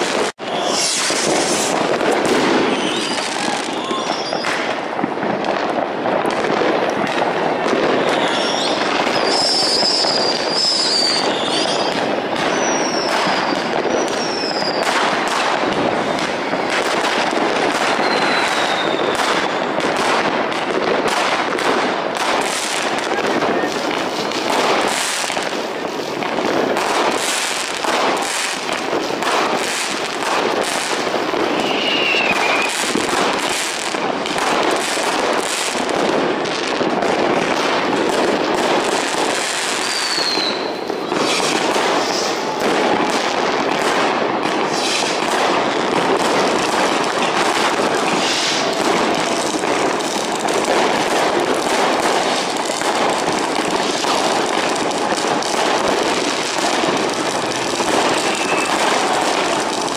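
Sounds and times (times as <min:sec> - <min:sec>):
falling firework whistle: 0:00.0 - 0:04.8, 0:07.1 - 0:20.1, 0:26.9 - 0:35.8, 0:38.9 - 0:50.2, 0:55.1 - 0:59.9
fireworks crackling and banging: 0:00.0 - 0:59.9.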